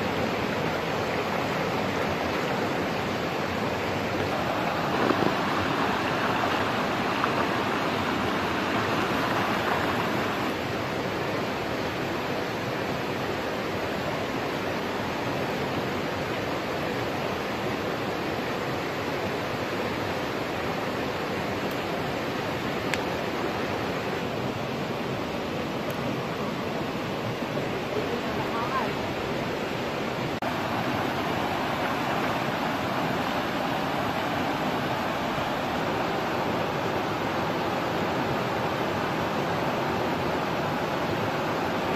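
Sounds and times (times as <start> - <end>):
river rushing over rocks: 0.0 - 41.9.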